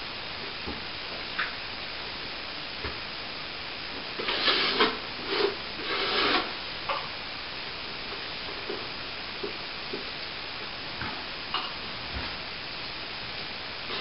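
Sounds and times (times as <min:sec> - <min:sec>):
tool scraping plaster: 0:04.2 - 0:06.6.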